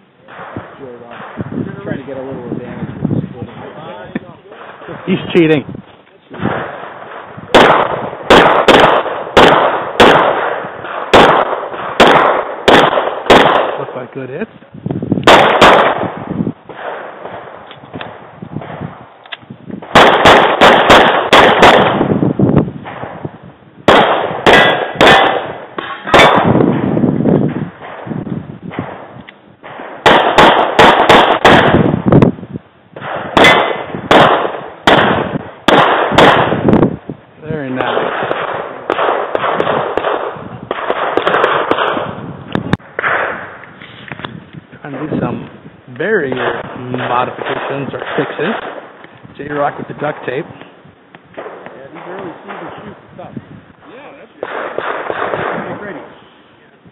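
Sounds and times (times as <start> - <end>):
steady rushing noise: 0.0 - 56.9
pistol shots: 6.3 - 14.1, 15.2 - 32.3, 33.0 - 36.9, 37.6 - 45.4, 46.1 - 53.0, 54.4 - 56.2.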